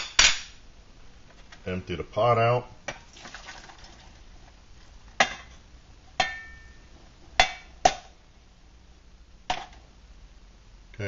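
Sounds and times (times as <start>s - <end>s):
metal pots clinking: 5.2s - 5.6s, 6.2s - 8.1s.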